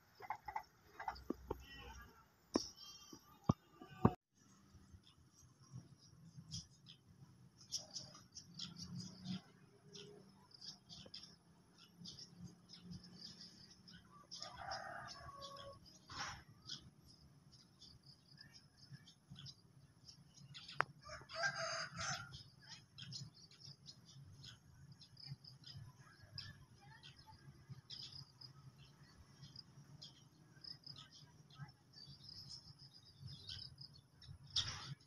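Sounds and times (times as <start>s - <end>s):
small birds chirping: 0.1s - 35.0s
rooster crowing: 14.4s - 15.8s, 21.0s - 22.4s.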